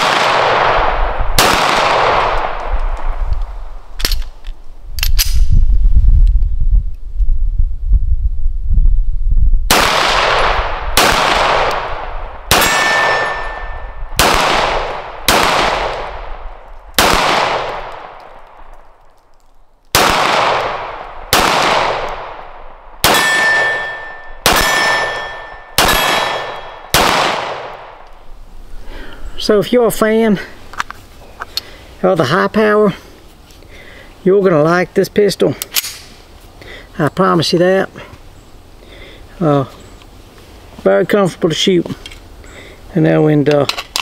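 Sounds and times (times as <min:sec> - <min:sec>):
pistol shots with echo: 0:00.0 - 0:02.6, 0:09.7 - 0:16.4, 0:17.0 - 0:18.6, 0:19.9 - 0:28.0
metallic ring: 0:12.6 - 0:14.0, 0:23.1 - 0:26.8.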